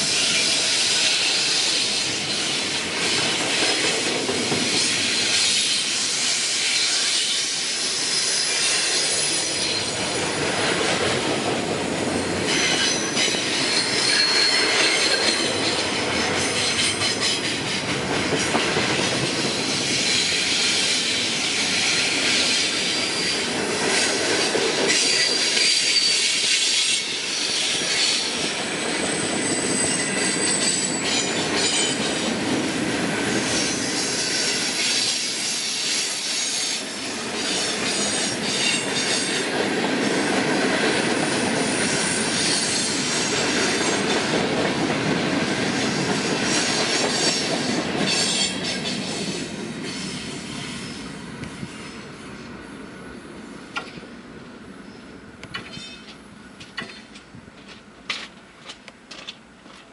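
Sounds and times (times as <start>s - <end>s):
train wheels rumbling on rail: 0.0s - 59.9s
high-pitched wheel squeal: 12.5s - 15.8s, 24.9s - 28.3s, 29.1s - 32.1s
clicks at rail joints: 53.7s - 54.1s, 55.4s - 59.9s.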